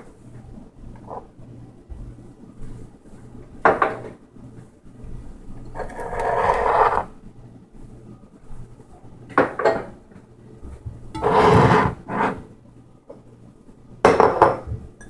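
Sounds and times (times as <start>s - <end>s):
rustling scrape: 5.8s - 7.1s, 11.2s - 12.5s.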